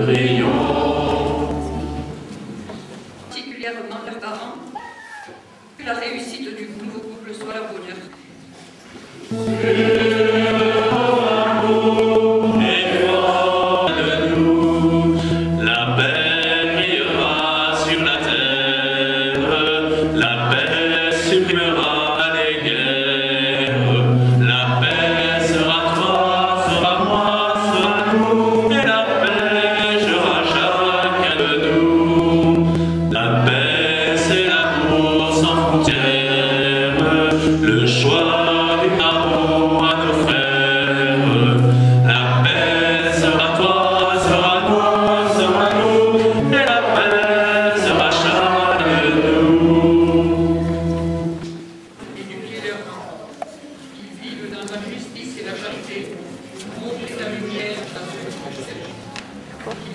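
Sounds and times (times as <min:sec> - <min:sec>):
choir and congregation singing hymn: 0:00.0 - 0:02.8, 0:09.3 - 0:52.0
sustained low accompaniment: 0:09.3 - 0:51.9
man singing into microphone: 0:09.4 - 0:50.5.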